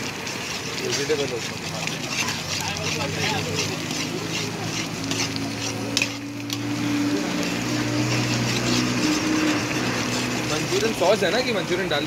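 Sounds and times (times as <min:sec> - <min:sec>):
ladle clicking against pan: 0:00.0 - 0:06.7
metal ladle stirring noodles: 0:00.0 - 0:12.0.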